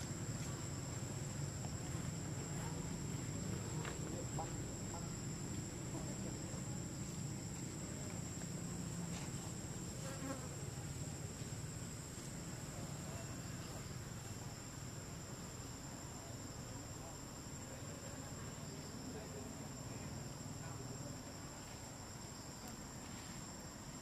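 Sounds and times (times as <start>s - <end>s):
insect chorus drone: 0.0s - 24.0s.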